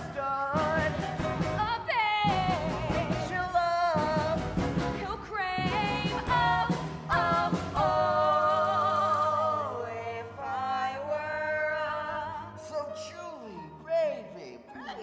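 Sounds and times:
woman singing: 0.6s - 4.3s, 5.0s - 9.6s.

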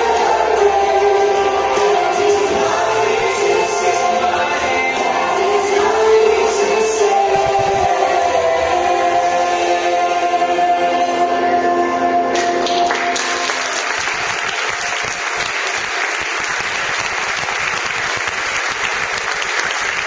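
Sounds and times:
song with instruments: 0.0s - 20.0s
crowd applauding: 12.3s - 20.0s.

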